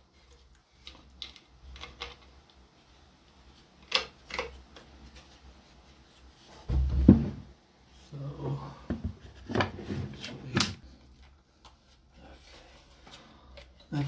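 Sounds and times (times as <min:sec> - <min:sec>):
board thud on workbench: 0:06.7 - 0:07.4.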